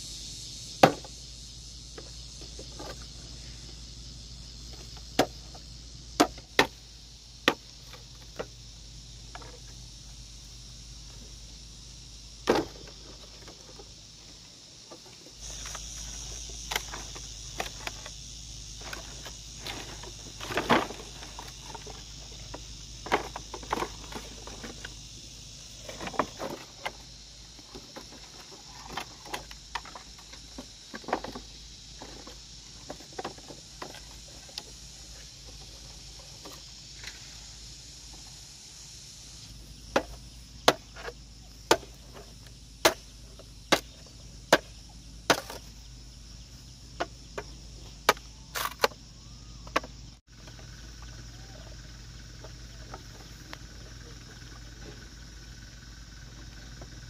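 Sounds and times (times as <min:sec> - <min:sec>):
insects buzzing: 0:00.0 - 0:57.0
hand tool chopping into ground: 0:06.2 - 0:06.8, 0:39.9 - 0:42.2, 0:42.8 - 0:45.7
knocks and rustles: 0:14.8 - 0:25.0, 0:25.6 - 0:37.4.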